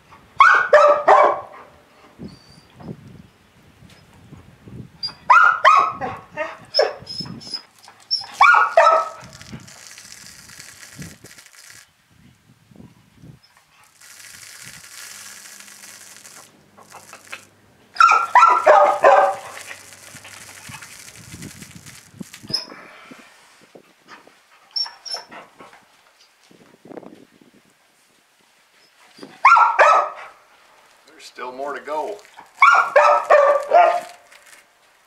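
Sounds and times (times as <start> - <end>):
dog barking: 0.4 - 1.6, 5.3 - 7.0, 8.4 - 9.2, 18.0 - 19.5, 29.4 - 30.4, 32.6 - 34.2.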